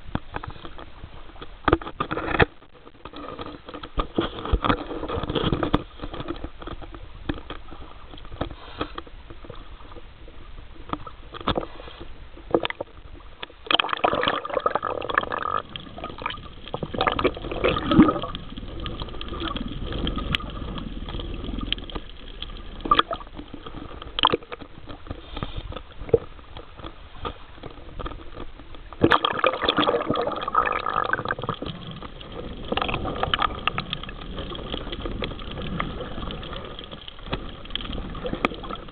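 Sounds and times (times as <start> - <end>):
water sloshing underwater: 0.0 - 38.9.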